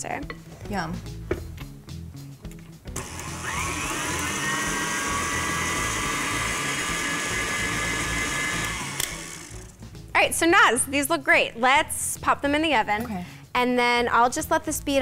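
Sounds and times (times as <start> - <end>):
stand mixer motor whining: 3.0 - 9.7.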